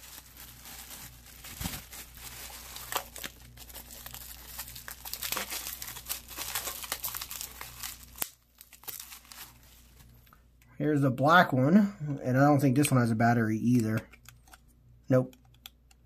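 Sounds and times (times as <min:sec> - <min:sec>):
plastic bubble wrap crinkling: 0:00.0 - 0:10.1.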